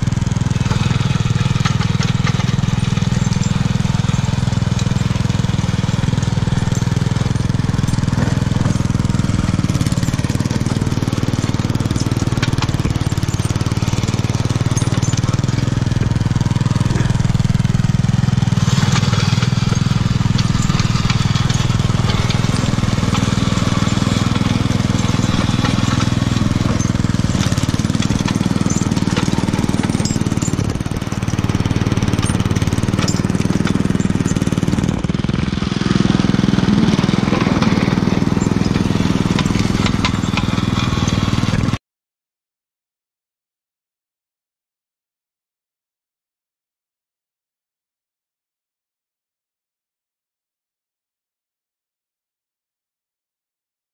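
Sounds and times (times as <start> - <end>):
small engine running: 0.0 - 41.8
tine scraping packed snow: 0.0 - 41.8.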